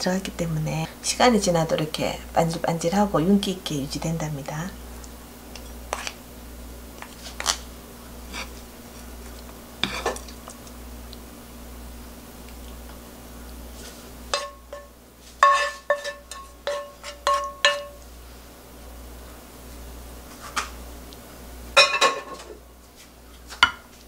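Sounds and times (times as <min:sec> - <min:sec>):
wooden spoon knocking on frying pan: 0:14.4 - 0:18.0.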